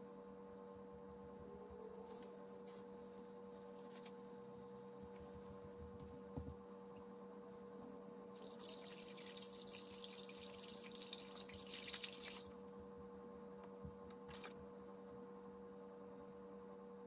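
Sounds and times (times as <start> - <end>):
water splashing in a tub: 8.3 - 12.6.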